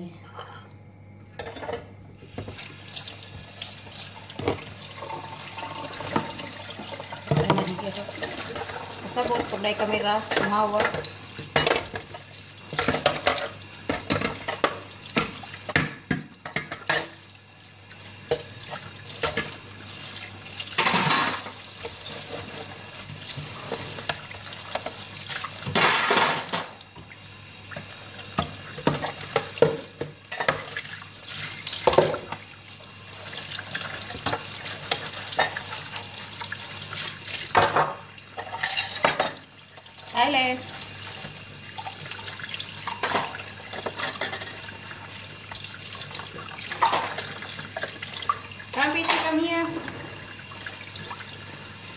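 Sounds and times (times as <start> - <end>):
low steady hum: 0.0 - 15.5
dishes and utensils clinking: 1.4 - 2.5, 7.3 - 12.1, 12.7 - 17.2, 20.8 - 22.7, 25.6 - 26.8, 28.4 - 30.8, 34.1 - 35.8, 37.5 - 39.5, 42.8 - 44.7, 46.7 - 47.9, 48.8 - 50.2
tap water running and splashing: 2.4 - 51.9.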